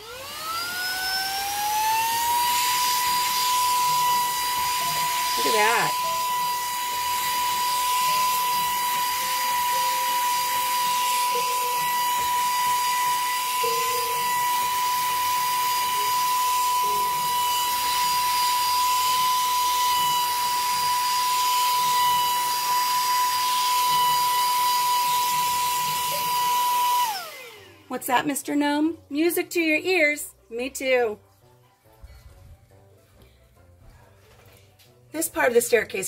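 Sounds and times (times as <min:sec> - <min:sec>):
handheld vacuum motor whine: 0:00.0 - 0:28.0.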